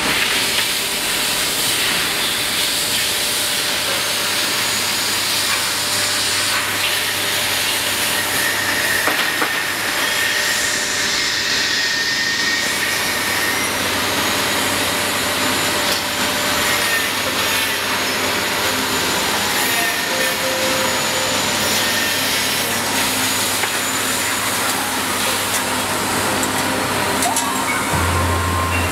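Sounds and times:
machine running: 0.0s - 28.9s.

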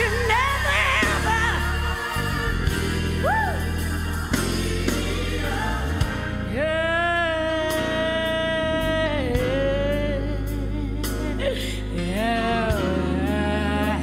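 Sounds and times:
woman singing: 0.0s - 1.8s, 6.5s - 14.0s
gospel band with bass and keyboards: 0.0s - 14.0s.

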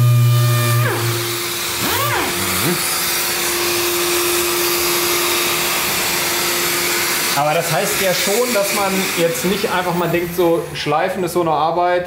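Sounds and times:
orbital sander hissing: 0.0s - 11.9s.

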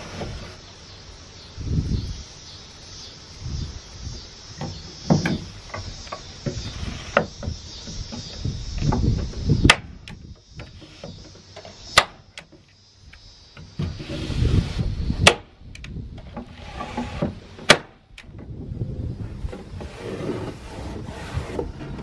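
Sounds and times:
knocks and rustles in wooden box: 4.6s - 9.8s.

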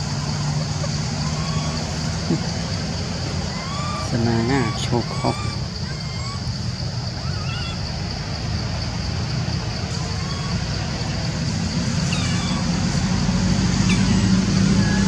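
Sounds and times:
low traffic rumble: 0.0s - 15.0s.

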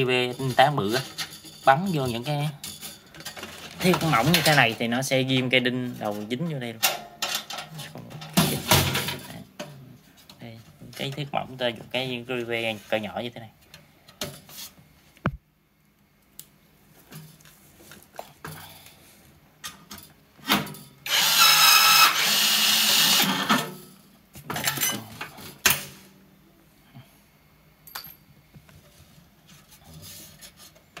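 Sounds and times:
rivet gun motor whining: 21.1s - 23.5s.

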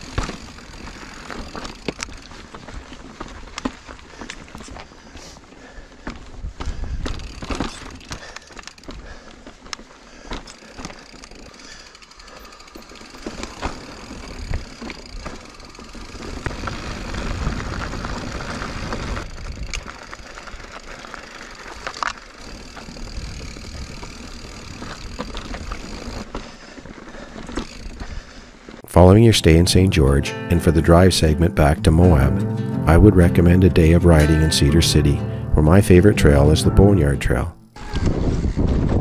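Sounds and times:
bike knocks and rattles: 0.0s - 4.9s, 6.0s - 9.3s, 12.8s - 17.4s
bike tyres rolling on rock: 0.0s - 28.9s, 37.8s - 39.0s.

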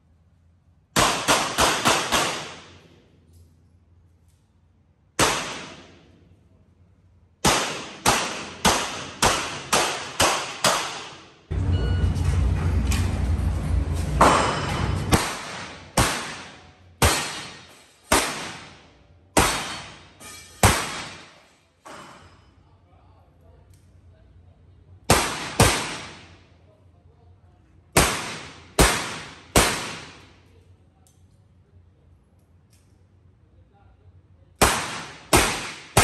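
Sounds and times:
dense rumbling noise: 11.5s - 15.2s.

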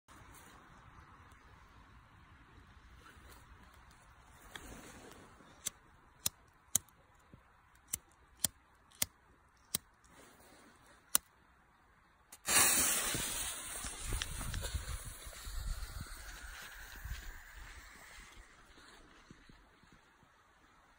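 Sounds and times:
fuse sputtering and hissing: 12.4s - 19.9s.

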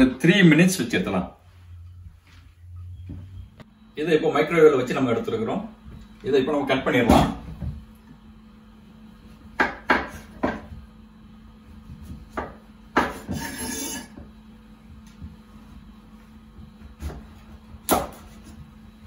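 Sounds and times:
knife scraping through squash: 13.1s - 14.2s.

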